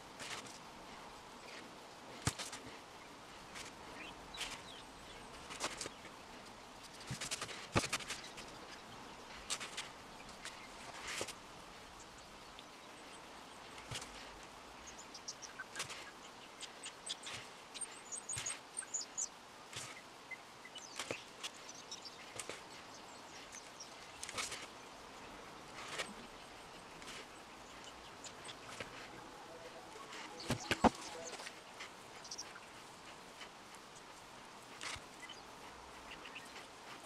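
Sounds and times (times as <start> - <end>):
faint high chirps: 27.6 - 32.8.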